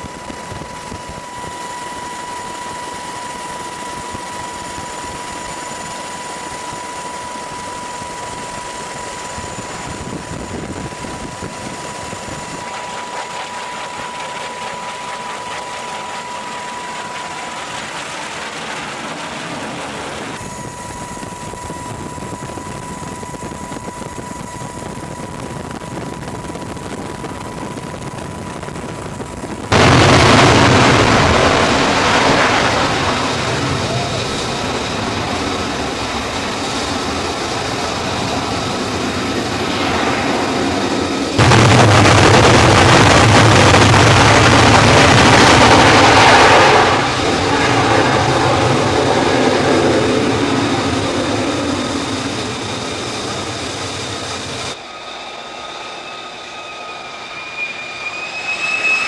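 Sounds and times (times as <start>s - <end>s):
jet engine rush and whine: 0.0s - 59.0s
jet catapult launch blast: 29.7s - 33.8s, 39.7s - 49.8s.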